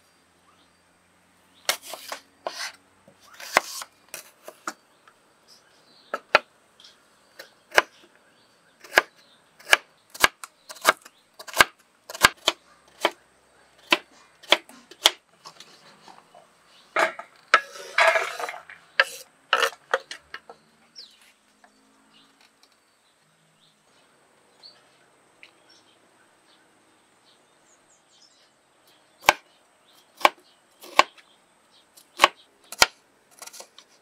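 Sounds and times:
diced carrot scraping into plate: 1.7s - 4.6s, 17.0s - 20.1s.

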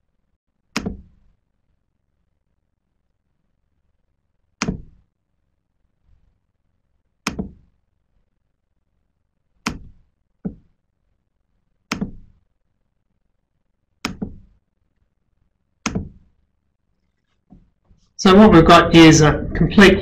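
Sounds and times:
sharp knocks: 4.6s - 5.0s, 7.3s - 7.7s, 11.9s - 12.4s, 14.0s - 14.6s, 15.9s - 16.3s.

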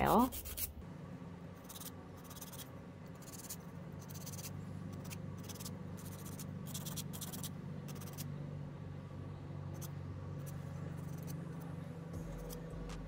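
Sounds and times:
nail file rasping on nails: 0.0s - 0.8s, 1.6s - 8.3s, 9.7s - 12.7s
steady low hum: 0.0s - 13.0s.

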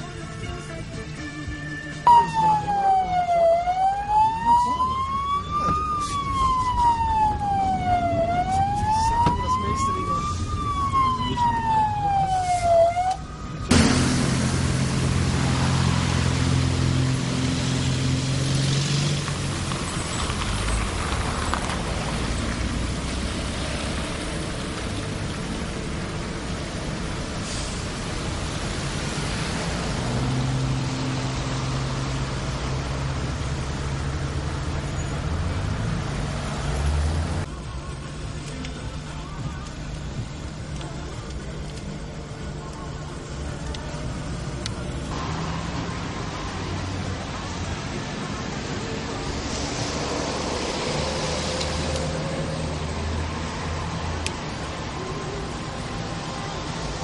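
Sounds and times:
police siren wailing: 1.6s - 14.0s
car driving at speed: 2.0s - 37.6s.

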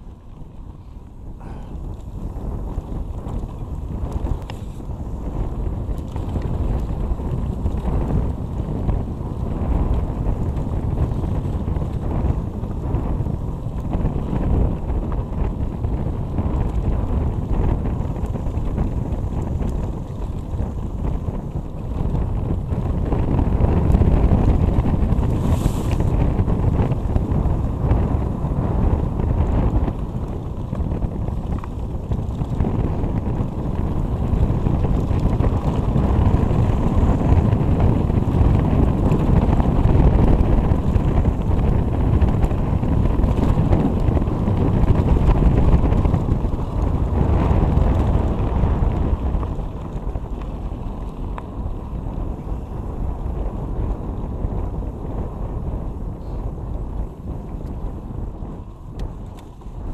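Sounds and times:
tyres rumbling on dirt trail: 0.0s - 59.9s
wind buffeting microphone: 0.0s - 59.9s.

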